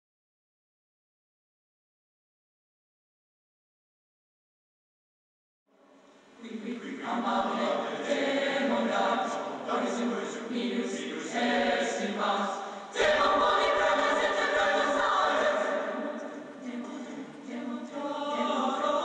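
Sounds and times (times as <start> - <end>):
choir singing held chords: 6.4 - 19.0.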